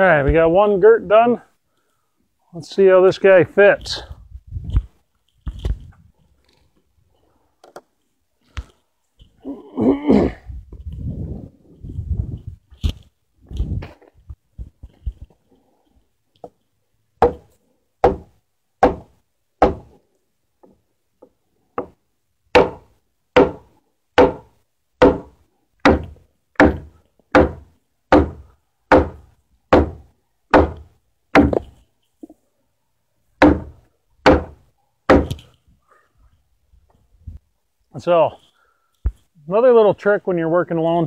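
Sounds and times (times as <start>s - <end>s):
heavy blows on timber: 17.2s - 19.9s, 21.8s - 31.7s, 33.4s - 35.4s.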